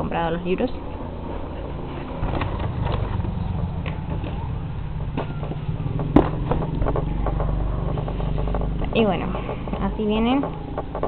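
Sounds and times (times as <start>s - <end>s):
steady low rumble: 0.0s - 11.0s
loud thump: 2.2s - 9.1s.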